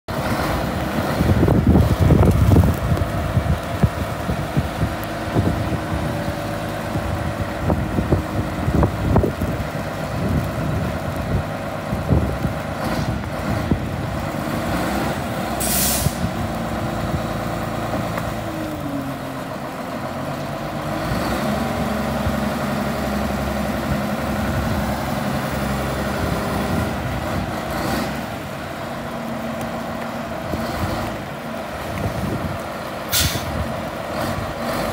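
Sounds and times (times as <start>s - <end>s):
diesel engine running: 0.1s - 34.9s
short hiss: 15.6s - 16.2s, 33.1s - 33.5s.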